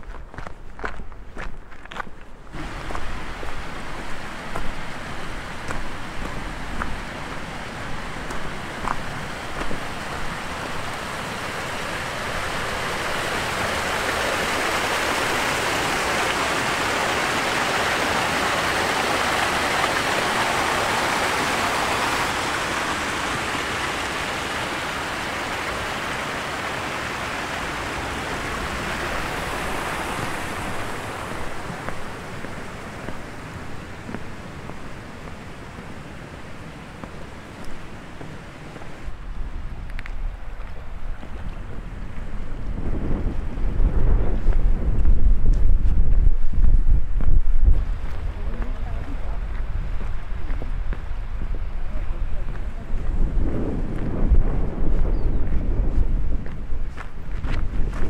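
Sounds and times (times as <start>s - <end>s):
footsteps on gravel: 0.0s - 10.9s, 37.0s - 42.8s, 44.3s - 58.0s
stream cascading over boulders: 0.0s - 45.7s, 46.5s - 54.9s.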